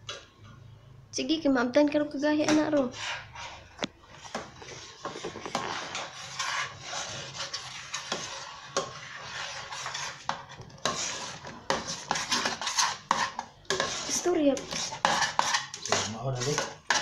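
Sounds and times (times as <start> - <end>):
metal spoon scraping a pot: 2.4 - 17.0.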